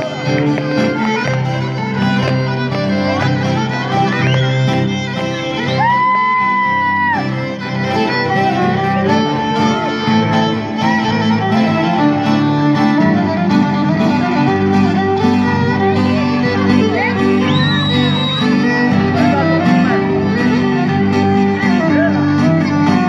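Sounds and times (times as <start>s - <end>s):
violin sliding into held notes: 0.0s - 23.0s
live band playing dance tune: 11.1s - 23.0s.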